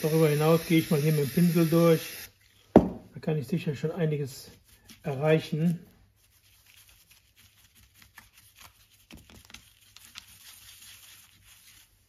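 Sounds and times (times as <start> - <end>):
paintbrush scrubbing in ratchet: 6.2 - 12.0.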